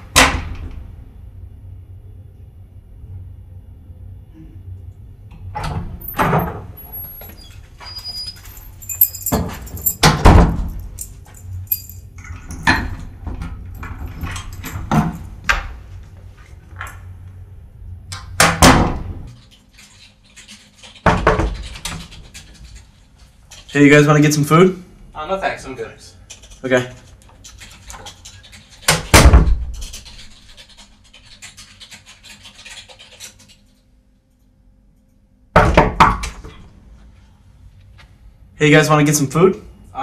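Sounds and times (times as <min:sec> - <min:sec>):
low steady hum: 0:00.0 - 0:19.9.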